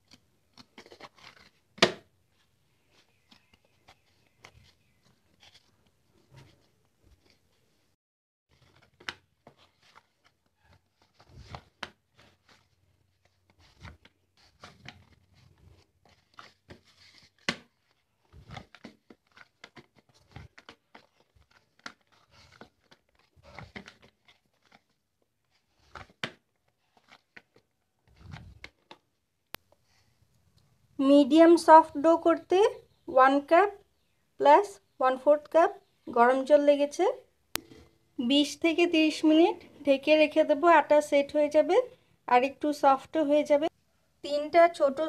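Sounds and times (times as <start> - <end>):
dough squishing: 0.0 - 7.9, 8.5 - 29.1.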